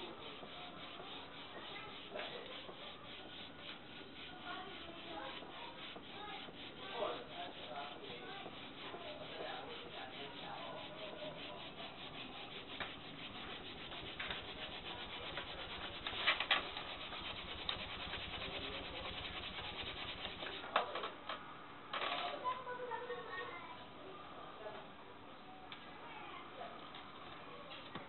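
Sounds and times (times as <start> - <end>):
bamboo rasping back and forth: 0.0 - 20.7.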